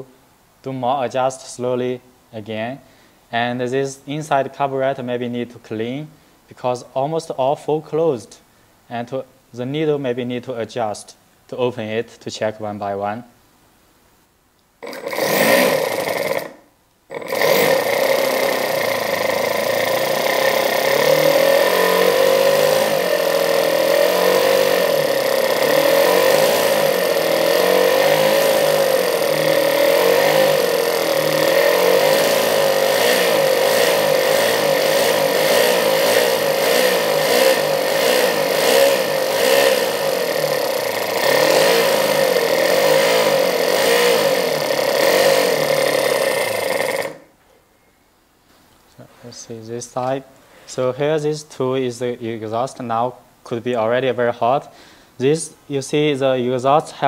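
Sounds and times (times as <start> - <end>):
model glow engine running: 14.8 - 47.3.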